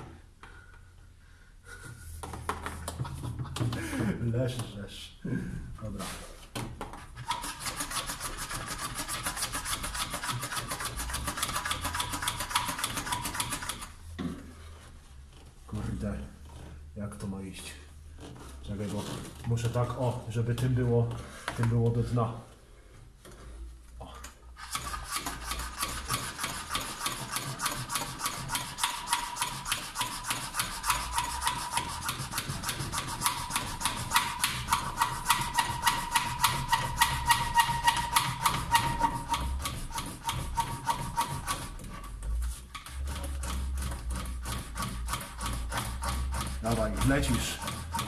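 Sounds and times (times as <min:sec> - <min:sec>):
hand pump squeaking: 0:07.2 - 0:13.9, 0:24.6 - 0:48.0.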